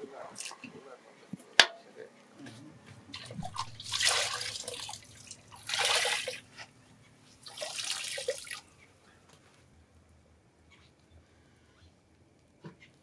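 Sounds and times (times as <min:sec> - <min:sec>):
thread splashing in water basin: 0:03.2 - 0:06.5, 0:07.4 - 0:08.7.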